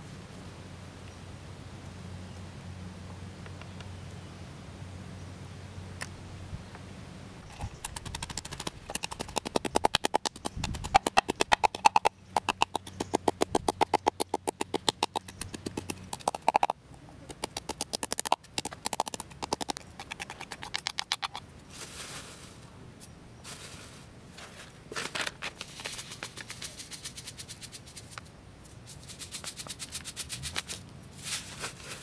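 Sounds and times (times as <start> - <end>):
wooden pestle pounding in mortar: 7.5 - 16.7, 17.3 - 21.4.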